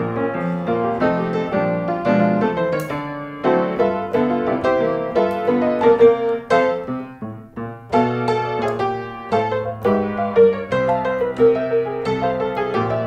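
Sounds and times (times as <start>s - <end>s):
piano music: 0.0s - 13.0s.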